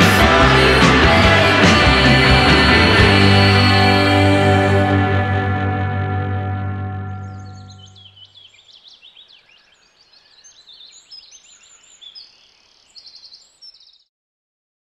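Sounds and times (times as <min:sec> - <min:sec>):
low music chord: 0:00.0 - 0:08.0
songbirds chirping and trilling: 0:07.0 - 0:14.1.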